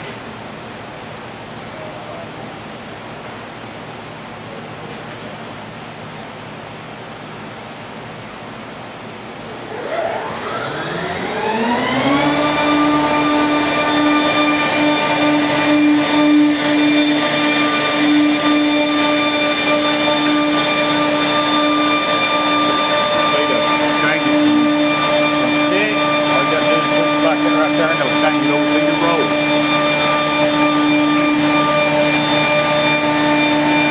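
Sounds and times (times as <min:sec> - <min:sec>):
machine motor whine: 0:09.4 - 0:33.9.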